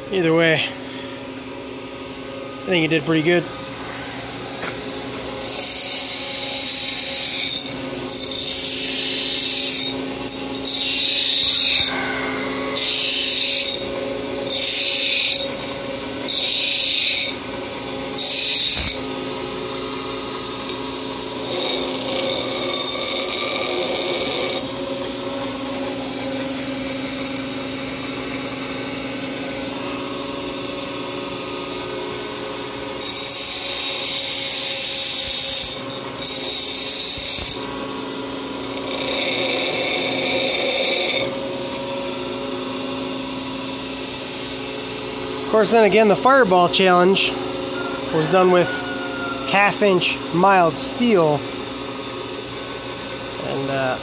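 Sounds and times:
grinder motor humming: 0.7 - 48.7
grinder grinding metal: 5.4 - 17.5, 18.2 - 19.1, 20.7 - 24.8, 33.0 - 37.8, 38.6 - 41.4.

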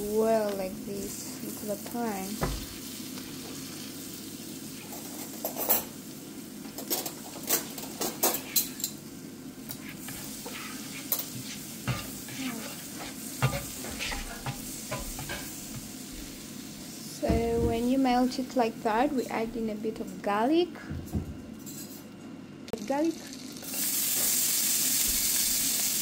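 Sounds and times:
butter sizzling in a frying pan: 0.0 - 17.2, 22.8 - 26.0
spatula scraping and tapping pan: 9.7 - 16.3.

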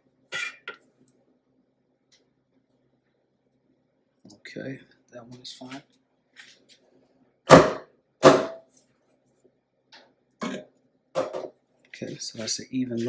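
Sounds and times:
knocks on metal cake pan: 7.5 - 8.6.

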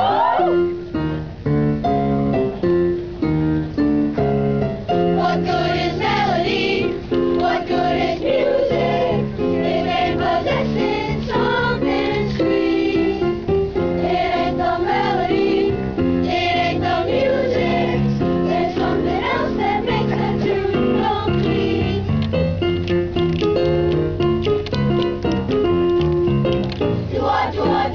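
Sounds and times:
accompanying chords: 0.0 - 27.9
boys' choir singing: 5.1 - 13.3, 14.0 - 22.0, 27.1 - 27.9.

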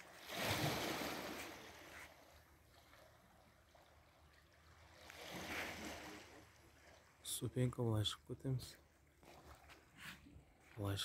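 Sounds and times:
waves washing against shore: 0.0 - 2.3, 5.0 - 6.6.

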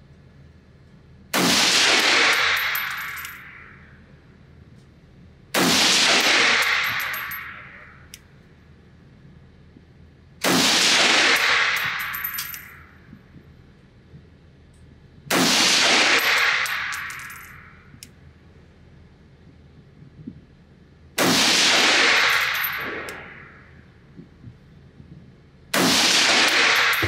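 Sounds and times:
rifle shots with echo: 1.3 - 3.3, 5.6 - 7.8, 10.4 - 12.4, 15.3 - 17.6, 21.2 - 23.3, 25.7 - 27.0.

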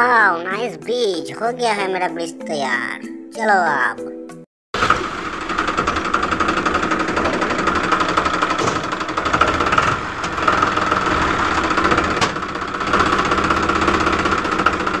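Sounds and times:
tractor engine knocking rattle: 4.8 - 15.0.

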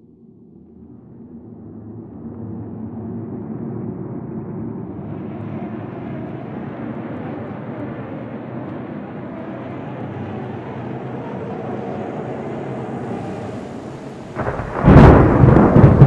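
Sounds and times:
loud thunderclap: 14.4 - 16.0.

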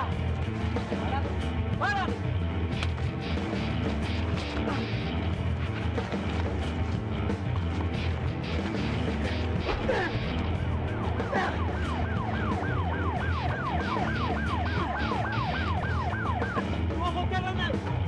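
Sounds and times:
low background music: 0.0 - 18.0
police siren yelping: 9.7 - 17.0.

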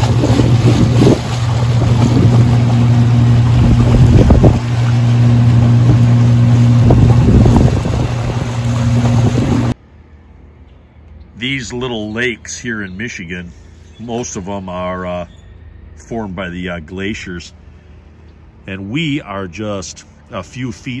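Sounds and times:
outboard motor running: 0.0 - 9.8
water rushing past hull: 0.0 - 9.8
wind buffeting microphone: 0.0 - 9.8.

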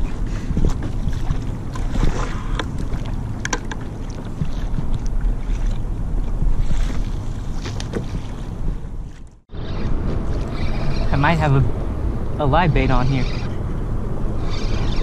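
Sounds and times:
water sloshing against hull: 0.0 - 15.0
wind rumble on microphone: 0.0 - 15.0.

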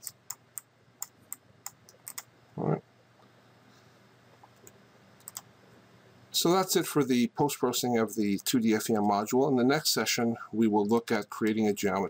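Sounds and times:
computer mouse clicks: 0.0 - 2.3, 4.4 - 5.5
faint background hum: 0.0 - 12.0
person humming: 2.6 - 2.8.

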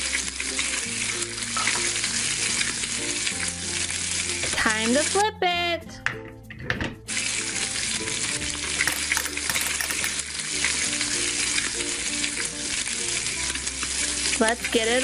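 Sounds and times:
frying sizzle: 0.0 - 5.4, 7.1 - 15.0
soft background music: 0.0 - 15.0
toy clicking in pan: 8.6 - 10.9.

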